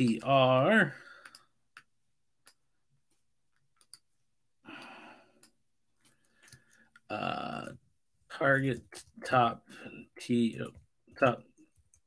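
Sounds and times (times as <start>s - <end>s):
man talking: 0.0s - 1.0s, 7.1s - 11.6s
faint clicks: 1.1s - 2.6s
man sighing: 4.6s - 5.4s.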